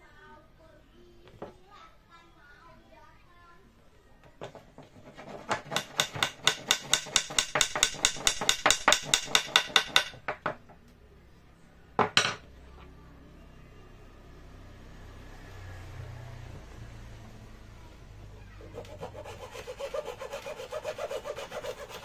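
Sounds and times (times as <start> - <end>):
hammer tapping wooden dowel: 4.4 - 10.6.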